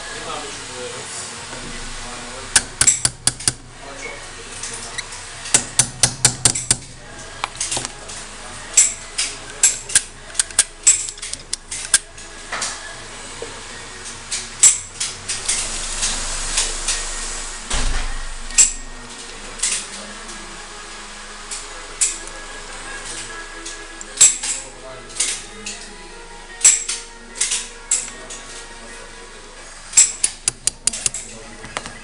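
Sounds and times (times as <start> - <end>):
hammer tapping pin punch: 2.6 - 3.6, 5.5 - 6.9, 30.0 - 31.2
metallic clicks of tools: 2.6 - 3.6, 8.8 - 12.1, 30.0 - 31.2.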